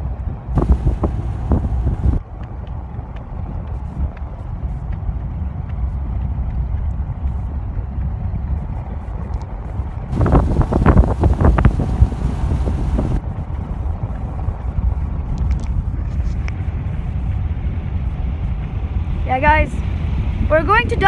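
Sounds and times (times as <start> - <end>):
wind rushing through open window: 0.0 - 21.0
truck engine rumble from cab: 0.6 - 2.2, 9.9 - 13.3.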